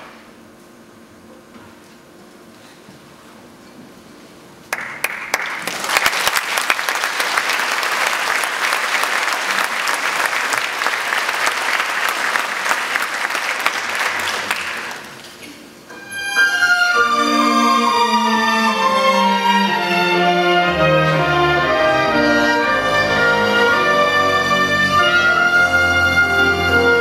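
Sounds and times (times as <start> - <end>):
audience applauding: 4.7 - 15.3.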